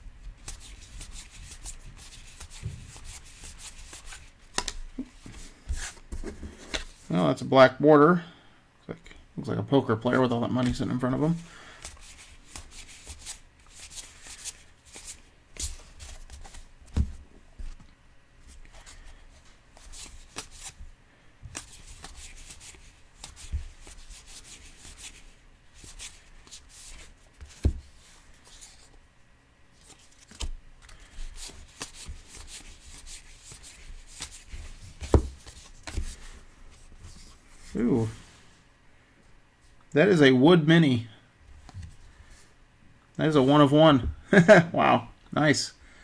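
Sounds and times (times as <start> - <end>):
cards sliding with papery rustle: 0.4 - 7.1, 11.7 - 17.8, 18.4 - 29.0, 29.7 - 38.5
cards thumping on table: 27.4 - 27.9, 34.9 - 36.2.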